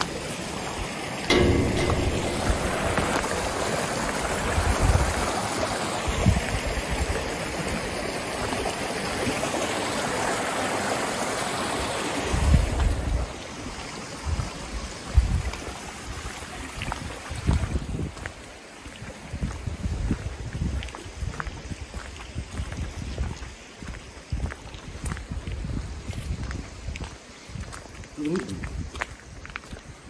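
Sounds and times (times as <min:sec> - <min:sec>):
low thumps: 0:01.3 - 0:04.4.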